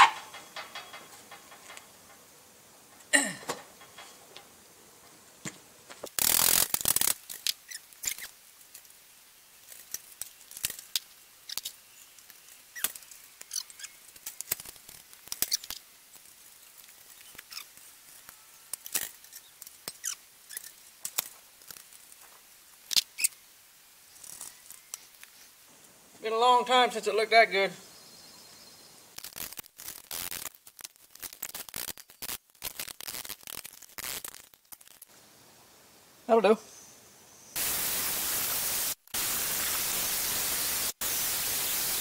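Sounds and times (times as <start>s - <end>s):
metal parts clicking and knocking: 0.0s - 2.2s
loud noisy burst: 37.6s - 42.0s.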